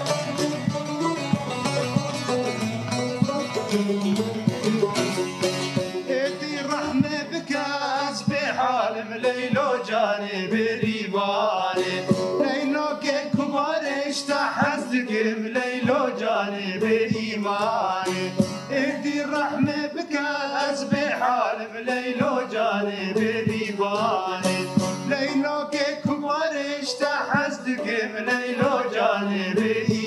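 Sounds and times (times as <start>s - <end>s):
banjo-like long-necked lute: 0.0s - 30.0s
men singing folk song: 0.0s - 30.0s
plucked lute: 0.0s - 30.0s.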